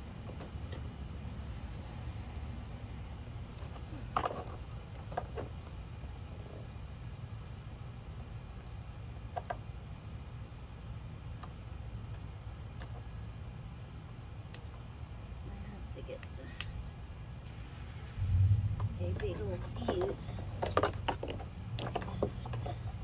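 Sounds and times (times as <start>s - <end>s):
low rumble: 17.5s - 21.8s
clicks and rustles of wiring: 18.8s - 23.0s.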